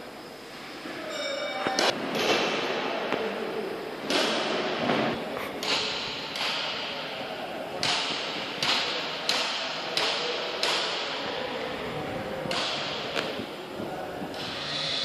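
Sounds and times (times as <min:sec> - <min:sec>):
compressed air bursts hissing: 0:14.3 - 0:15.0.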